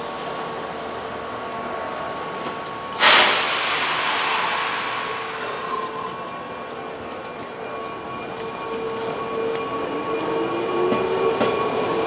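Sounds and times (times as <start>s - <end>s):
train air brakes hissing: 3.0s - 6.3s.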